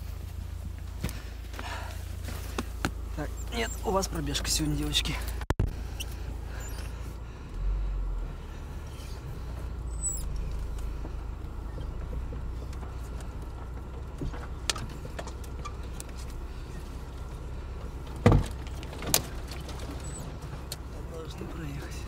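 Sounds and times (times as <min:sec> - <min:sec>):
car engine and tyres rumbling: 0:00.0 - 0:22.0
small clicks and creaks: 0:08.8 - 0:21.0.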